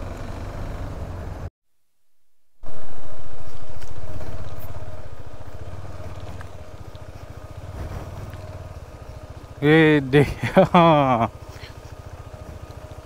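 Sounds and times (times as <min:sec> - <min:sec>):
motorcycle engine running: 0:00.0 - 0:01.5, 0:02.6 - 0:13.0.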